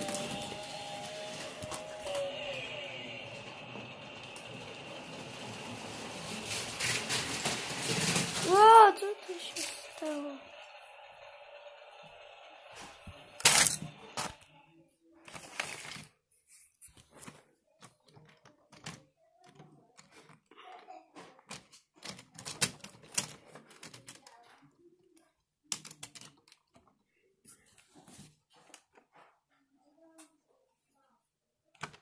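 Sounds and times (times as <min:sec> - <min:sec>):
plastic bricks clicking and knocking: 0:17.0 - 0:24.7, 0:25.6 - 0:27.0, 0:31.8 - 0:32.0.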